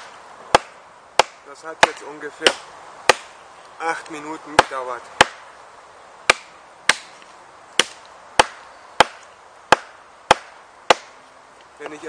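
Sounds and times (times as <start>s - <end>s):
knife chopping into log: 0.5s - 3.3s.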